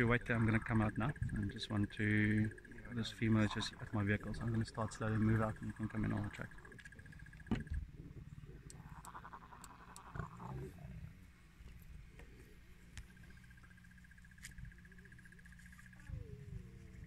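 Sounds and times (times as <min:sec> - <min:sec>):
soft wavering calls: 0:00.0 - 0:10.9
steady low rumble: 0:00.0 - 0:17.0
lioness growling: 0:02.4 - 0:07.2, 0:07.9 - 0:11.2.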